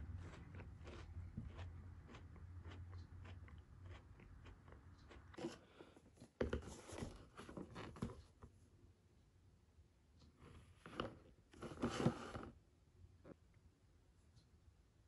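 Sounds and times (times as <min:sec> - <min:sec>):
chewing chocolate wafer: 0:00.0 - 0:05.8.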